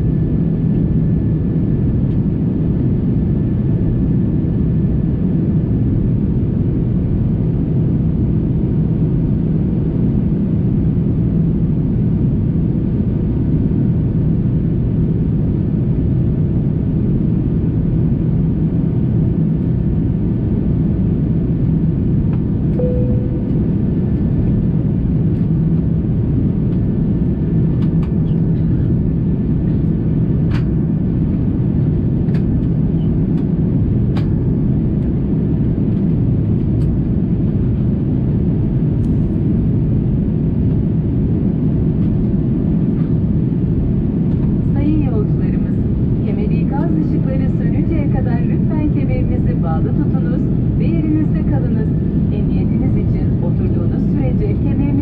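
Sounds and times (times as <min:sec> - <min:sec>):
aircraft cabin engine roar: 0:00.0 - 0:55.0
single tone chime: 0:22.8 - 0:24.0.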